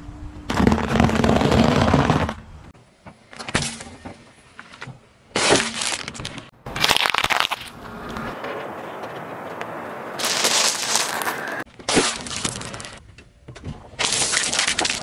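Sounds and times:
berries crackling under tyre: 0:05.4 - 0:13.0
tyre crunching dry food: 0:05.5 - 0:07.8, 0:10.2 - 0:13.0.

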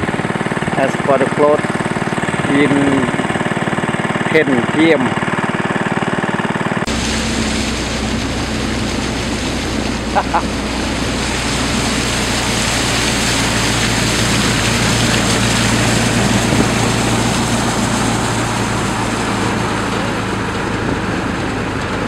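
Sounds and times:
vehicle engine humming: 0:00.0 - 0:22.0
water hiss: 0:06.9 - 0:20.5
wind hiss: 0:11.1 - 0:20.1.

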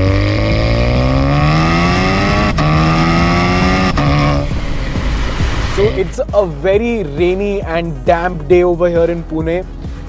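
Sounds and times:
car engine accelerating: 0:00.0 - 0:06.7.

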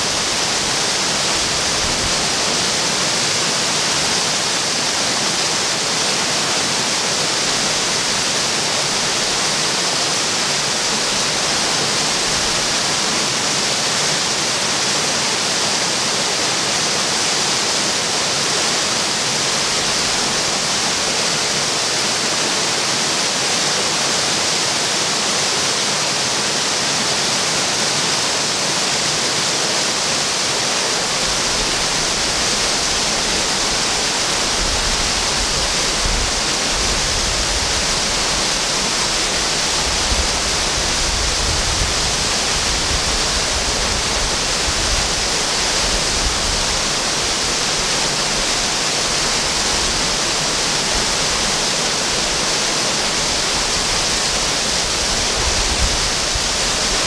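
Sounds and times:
water rushing over stone ledges: 0:00.0 - 0:57.0.

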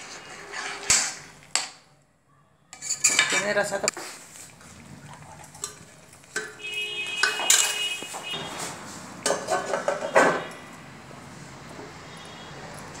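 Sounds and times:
steel plate clanking on pot: 0:02.8 - 0:03.6, 0:05.6 - 0:07.9, 0:09.2 - 0:10.5.

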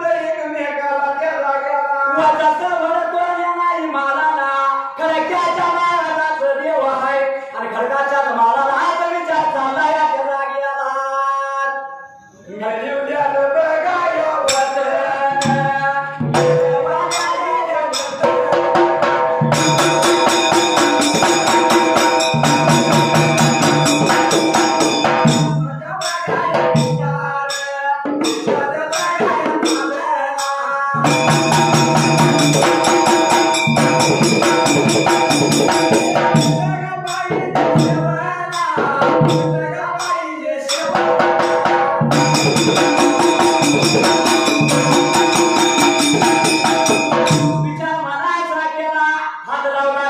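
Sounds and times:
men singing: 0:12.5 - 0:50.0
hand cymbals clashing: 0:14.4 - 0:47.8
drums beating: 0:14.4 - 0:48.1.

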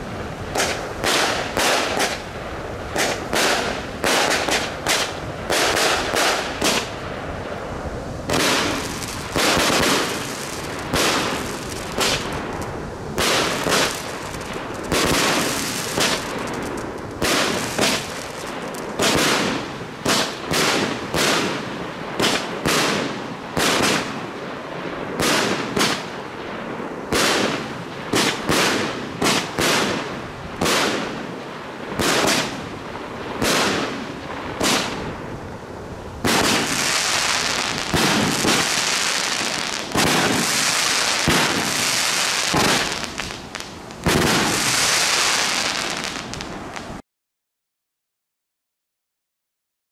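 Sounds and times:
firework shots: 0:00.0 - 0:35.5, 0:36.2 - 0:47.0
firework crackling: 0:00.0 - 0:47.0.

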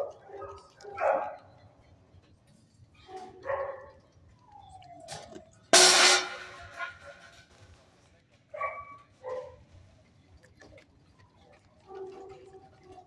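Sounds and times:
dogs barking: 0:00.0 - 0:01.8, 0:03.0 - 0:04.1, 0:08.6 - 0:09.7, 0:11.8 - 0:13.0
loud sudden burst: 0:05.8 - 0:07.2.

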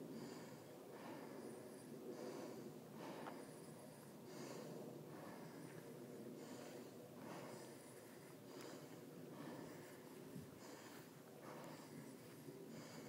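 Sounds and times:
person breathing hard: 0:00.0 - 0:13.0.

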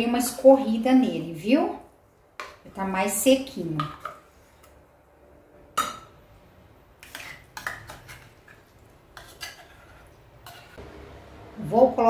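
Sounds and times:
spoon scraping metal bowl: 0:07.0 - 0:10.8.

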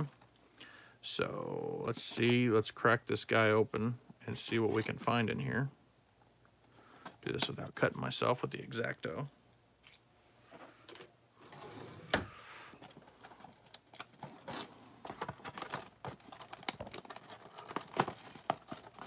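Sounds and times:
plastic shrink-wrap crinkling: 0:12.9 - 0:19.0.

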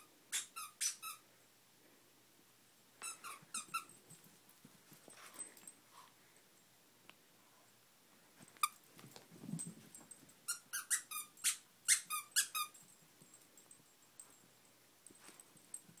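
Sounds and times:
squeaky toy squeaking: 0:00.0 - 0:01.2, 0:03.0 - 0:03.9, 0:10.5 - 0:12.8.

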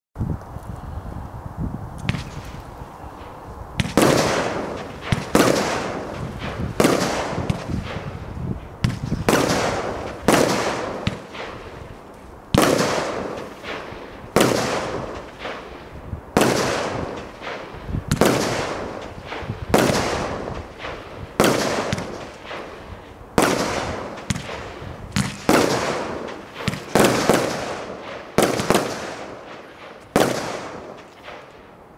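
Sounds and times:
firework barrage bangs: 0:03.8 - 0:11.8, 0:12.5 - 0:31.5.

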